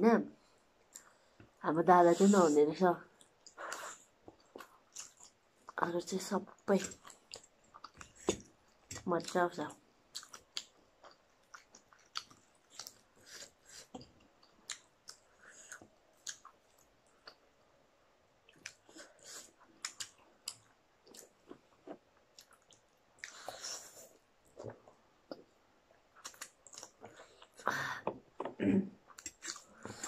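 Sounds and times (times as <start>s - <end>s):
mouth chewing and smacking: 3.2s - 5.8s, 6.5s - 9.4s, 10.1s - 17.6s, 18.4s - 30.0s.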